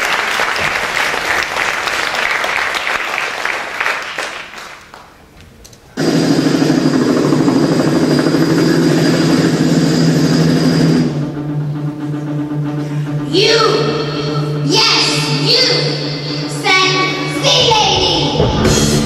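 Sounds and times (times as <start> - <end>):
audience applause: 0.0 - 5.2
loud steady drone: 6.0 - 19.0.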